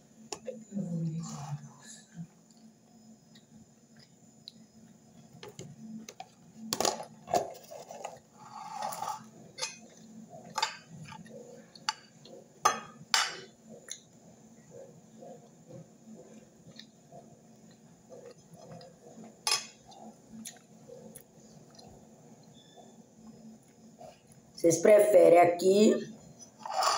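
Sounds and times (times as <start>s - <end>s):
cutlery clinking and scraping on plate: 6.8s - 11.2s, 19.4s - 19.8s, 26.5s - 26.9s.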